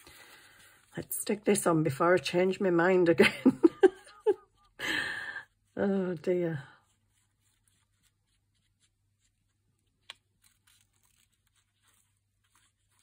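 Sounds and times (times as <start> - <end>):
paper rustling: 0.0 - 1.1, 5.6 - 13.0.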